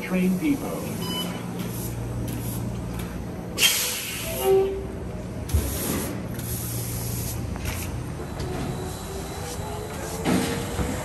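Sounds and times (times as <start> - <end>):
trolleybus humming: 0.0 - 11.0
air hissing: 3.5 - 4.7, 5.5 - 7.9.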